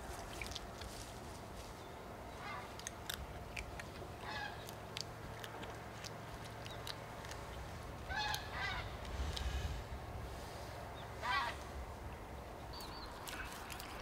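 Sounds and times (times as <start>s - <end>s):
otter chewing with crunching bites: 0.0s - 9.6s, 12.7s - 14.0s.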